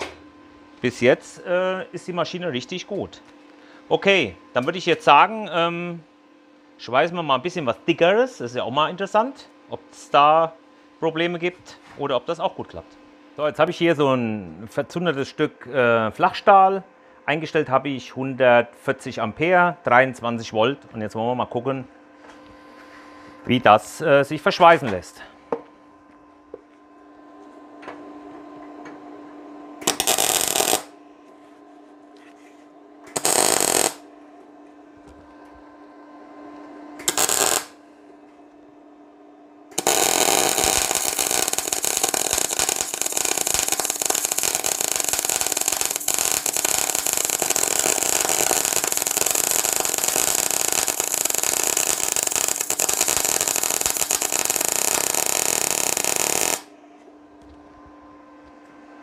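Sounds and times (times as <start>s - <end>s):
welding arc crackling: 29.8s - 31.0s, 33.1s - 34.1s, 37.0s - 37.8s, 39.8s - 56.7s.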